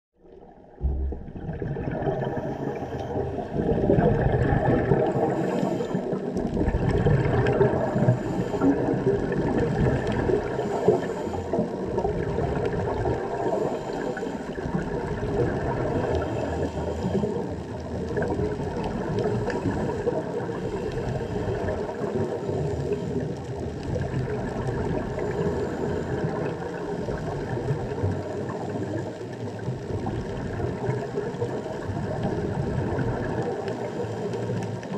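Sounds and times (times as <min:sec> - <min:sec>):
muffled underwater water rush: 0:00.2 - 0:34.9.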